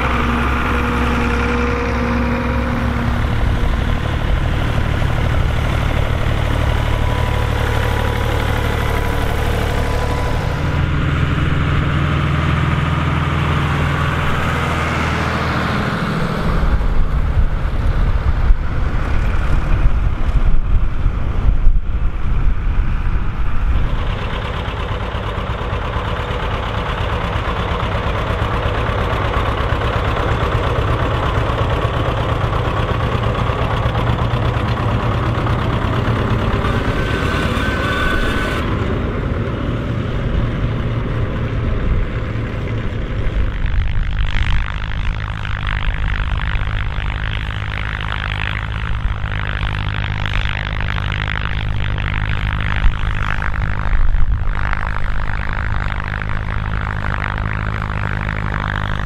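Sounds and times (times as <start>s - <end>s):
diesel tractor engine under load: 0.0s - 59.0s.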